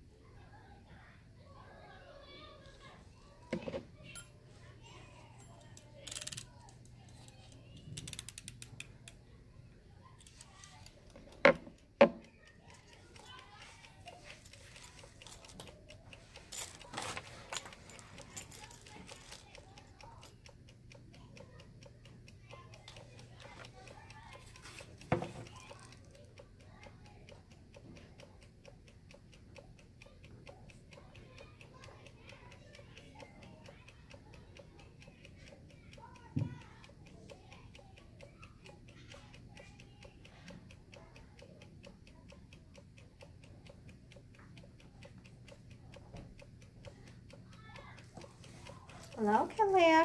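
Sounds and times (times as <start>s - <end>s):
faint steady ticking: 0.0s - 50.0s
desk items clicking and rattling: 3.5s - 4.4s, 10.9s - 12.3s, 16.4s - 19.5s.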